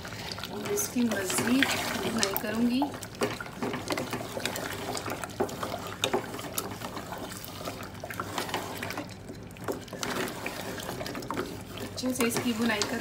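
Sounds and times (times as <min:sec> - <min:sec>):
gravy crackling: 0:00.0 - 0:13.0
wooden spoon stirring thick gravy: 0:00.0 - 0:13.0.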